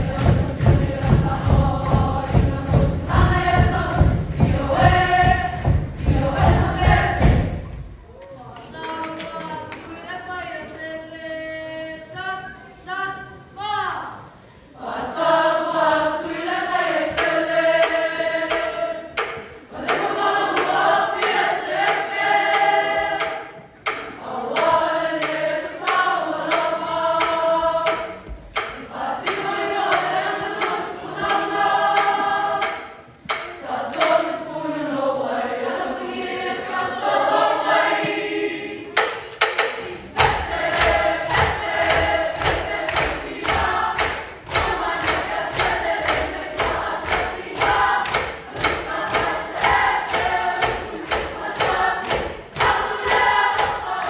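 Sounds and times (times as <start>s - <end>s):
quick steady thumps: 0.0s - 7.9s
choir singing in harmony: 0.0s - 8.0s, 8.7s - 54.0s.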